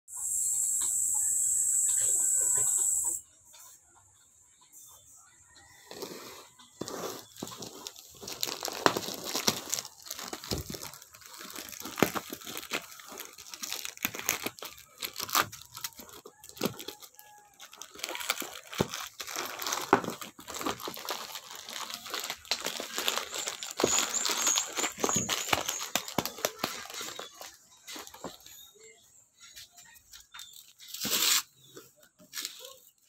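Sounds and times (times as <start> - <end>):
plastic pouch tearing: 6.8 - 28.4, 30.9 - 31.6
plastic pouch crinkling: 6.8 - 28.5.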